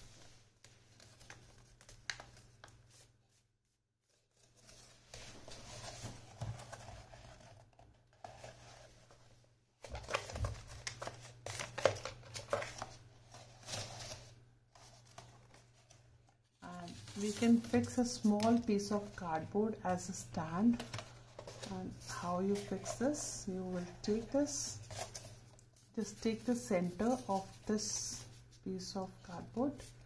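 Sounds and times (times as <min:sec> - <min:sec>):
folded paper rustling: 0:04.0 - 0:19.2, 0:20.6 - 0:28.5.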